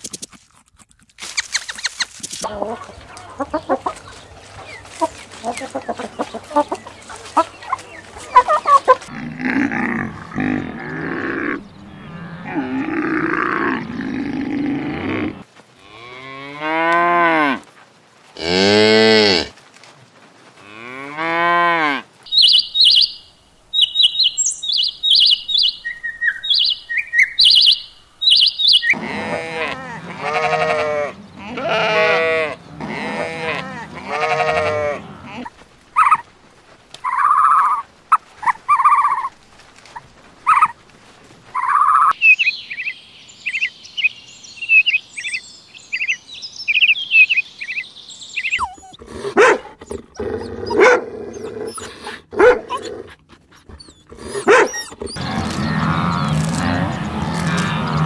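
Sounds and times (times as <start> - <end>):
chickens clucking: 1.6 - 9.1
cows mooing: 4.8 - 17.6, 28.9 - 35.5, 53.7 - 58.0
high short bird chirps: 22.3 - 29.0.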